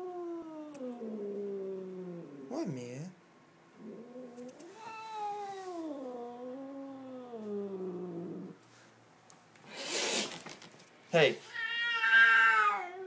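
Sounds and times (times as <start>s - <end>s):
cat hissing: 9.6s - 10.6s
cat yowling: 11.5s - 13.0s.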